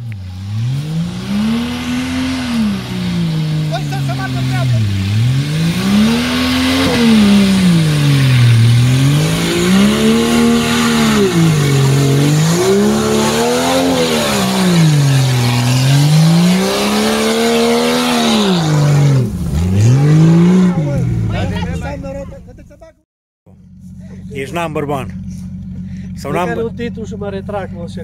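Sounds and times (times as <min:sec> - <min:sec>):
engine revving: 0:00.0 - 0:22.3, 0:23.5 - 0:28.0.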